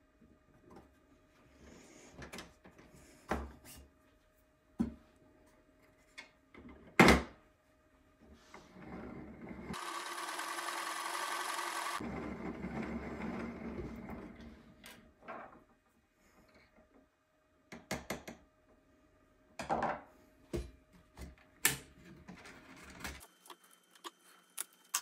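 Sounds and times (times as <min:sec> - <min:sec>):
plastic gears whirring: 0:09.7 - 0:12.1.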